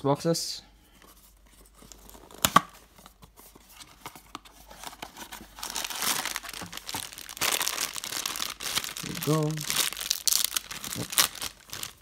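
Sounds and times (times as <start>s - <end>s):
foil bag crinkling: 5.5s - 12.0s.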